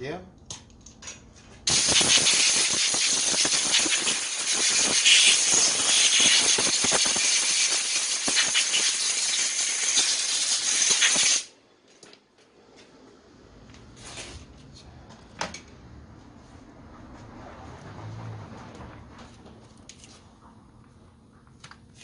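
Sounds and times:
compressed air blow gun hissing: 0:01.7 - 0:11.5
crackles: 0:01.7 - 0:11.5.

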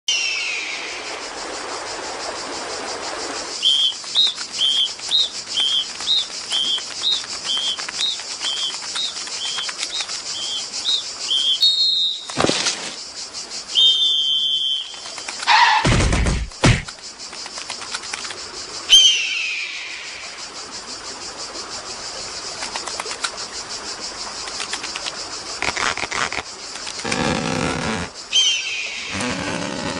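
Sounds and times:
two-pitch whistled chirps: 0:00.1 - 0:01.0, 0:03.6 - 0:12.4, 0:13.7 - 0:15.8, 0:18.9 - 0:20.0, 0:28.3 - 0:29.1
steady high hiss: 0:00.1 - 0:15.6, 0:16.2 - 0:29.9
held whistle: 0:03.6 - 0:08.8, 0:10.4 - 0:12.4, 0:13.7 - 0:15.8.

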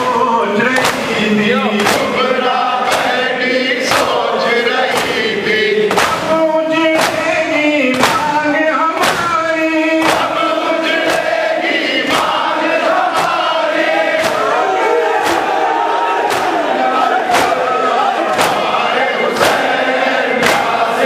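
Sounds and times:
man singing through microphone: 0:00.0 - 0:11.0
crowd chanting: 0:00.0 - 0:21.0
hand strikes on chests: 0:00.8 - 0:01.2, 0:01.8 - 0:04.2, 0:04.9 - 0:05.3, 0:05.9 - 0:21.0.

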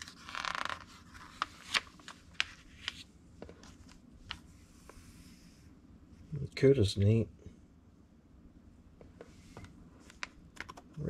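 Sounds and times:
magazine page turning: 0:00.0 - 0:04.4.

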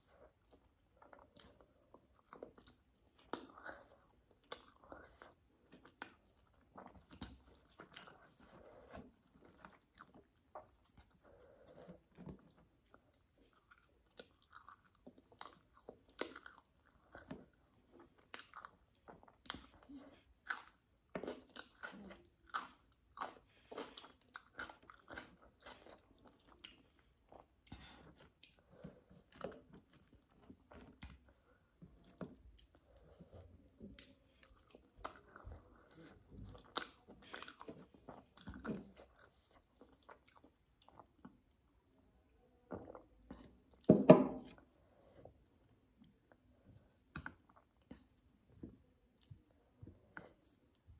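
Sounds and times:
chewing food: 0:00.0 - 0:41.7, 0:42.6 - 0:50.9.

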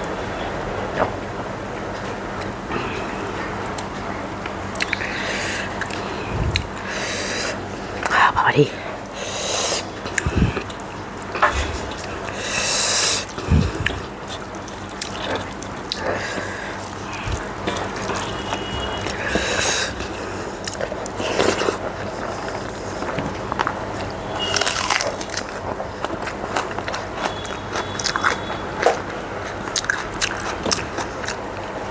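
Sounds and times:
wet chewing sounds: 0:04.7 - 0:08.2, 0:09.4 - 0:31.9
sharp hissing breaths: 0:09.1 - 0:10.6, 0:12.3 - 0:13.8.

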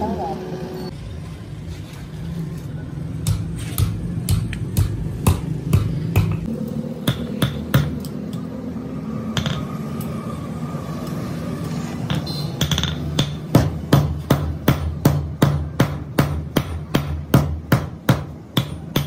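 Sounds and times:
hammer striking steel on anvil: 0:03.2 - 0:08.1, 0:12.1 - 0:19.0.

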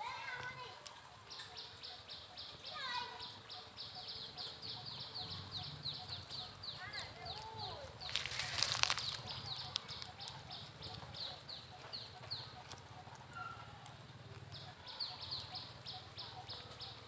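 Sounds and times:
bird chirping: 0:01.1 - 0:17.0
crackling rustle: 0:06.2 - 0:17.0.

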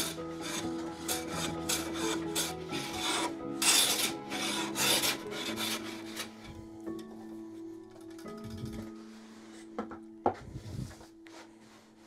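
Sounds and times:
bench plane shaving wood: 0:00.0 - 0:06.6.

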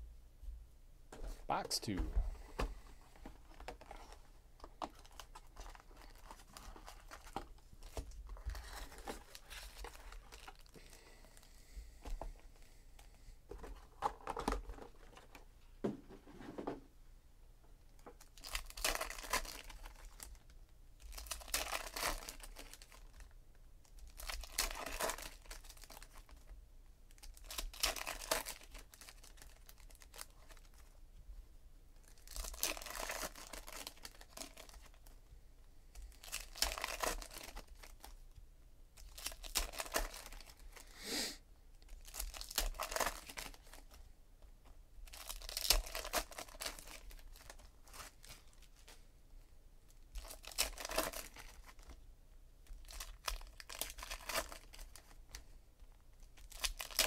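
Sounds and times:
foil packs ripping open: 0:18.4 - 0:20.3, 0:21.1 - 0:23.0, 0:27.4 - 0:30.7, 0:32.1 - 0:34.9, 0:36.2 - 0:38.0, 0:39.0 - 0:40.6, 0:42.0 - 0:43.8, 0:45.1 - 0:48.3, 0:50.2 - 0:51.8, 0:52.8 - 0:55.1, 0:56.4 - 0:57.0
foil wrappers crinkling: 0:27.2 - 0:30.9, 0:32.0 - 0:35.1, 0:36.1 - 0:38.2, 0:39.0 - 0:40.8, 0:41.9 - 0:44.0, 0:45.0 - 0:49.0, 0:50.2 - 0:52.0, 0:52.7 - 0:55.4, 0:56.4 - 0:57.0.

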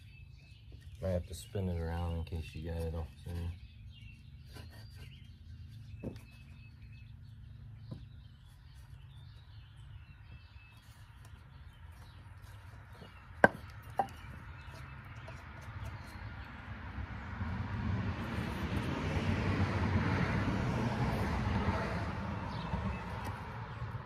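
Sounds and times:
birds chirping: 0:00.0 - 0:17.4, 0:21.2 - 0:24.0
vehicle noise: 0:00.0 - 0:24.0
wooden boards knocking: 0:13.0 - 0:14.4.

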